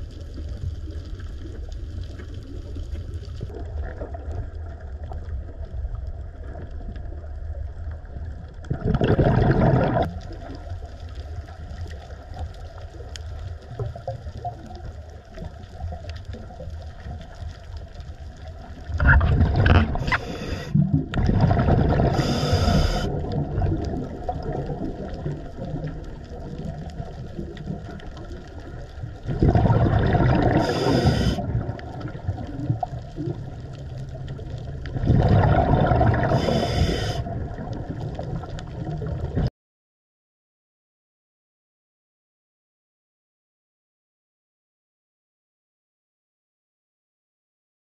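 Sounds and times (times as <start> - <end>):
low underwater rumble: 0.0 - 39.5
regulator exhalation bubbling: 8.7 - 10.1, 19.0 - 24.6, 29.3 - 32.1, 35.0 - 37.7.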